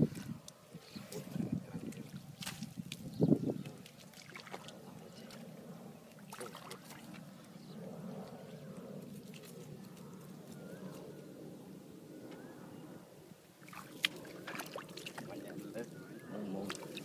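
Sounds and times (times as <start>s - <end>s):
splashing in muddy water: 1.8s - 5.4s, 6.2s - 7.2s, 13.6s - 15.6s, 16.6s - 17.0s
mud squelching: 1.8s - 5.5s, 13.6s - 15.9s, 16.6s - 17.0s.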